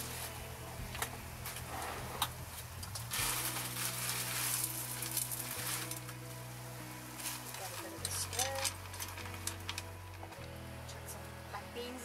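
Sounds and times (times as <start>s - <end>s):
vegetables sizzling in a frying pan: 3.2s - 6.2s.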